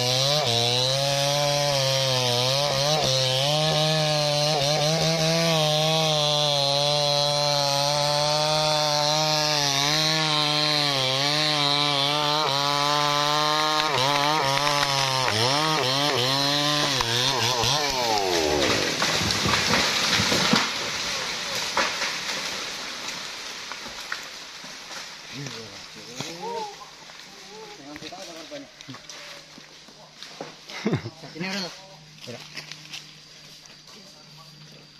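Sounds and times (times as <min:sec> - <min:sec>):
chainsaw cutting wood: 0:00.0 - 0:26.4.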